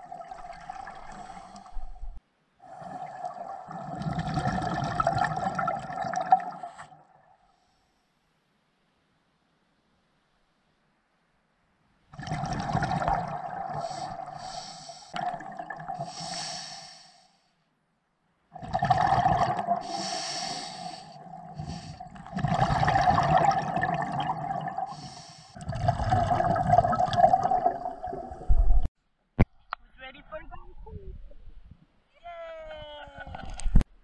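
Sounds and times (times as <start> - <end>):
exhaled bubbles gurgling underwater: 0.0 - 7.1, 12.1 - 14.6, 15.2 - 16.4, 18.6 - 28.9
diver inhaling through regulator: 13.6 - 15.2, 15.9 - 17.5, 19.7 - 22.9, 24.8 - 25.6.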